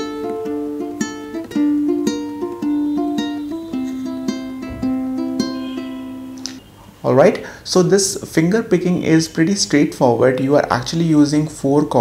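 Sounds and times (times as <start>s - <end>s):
ukulele fingerpicking: 0.0s - 6.7s.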